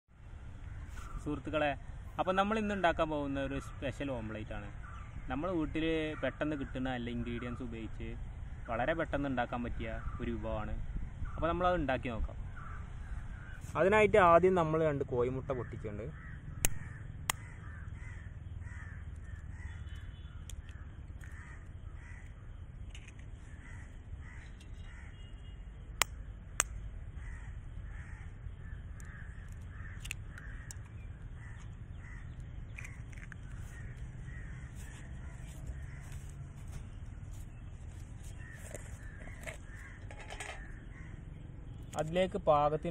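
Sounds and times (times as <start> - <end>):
crows cawing: 12.5 - 13.8, 15.5 - 25.6, 27.1 - 41.5.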